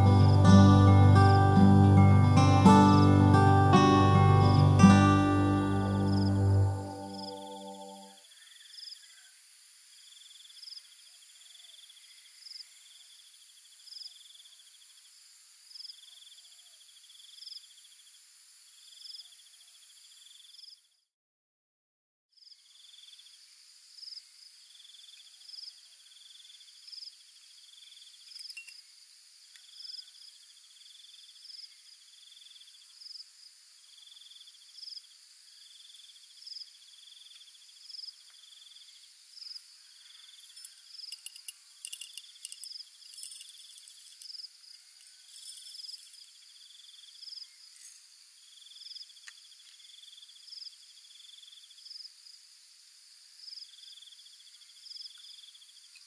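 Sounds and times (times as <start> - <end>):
insect high trill: 0.0 - 9.4, 24.8 - 29.0, 35.6 - 52.1
high-pitched hiss: 0.0 - 20.8, 22.5 - 56.0
insect chirps: 0.0 - 21.1, 22.3 - 56.0
small sharp clicks and rattles: 40.4 - 44.4.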